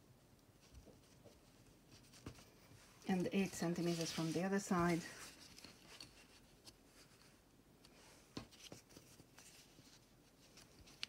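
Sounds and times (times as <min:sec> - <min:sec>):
fabric and strap rustling: 0:00.6 - 0:11.0.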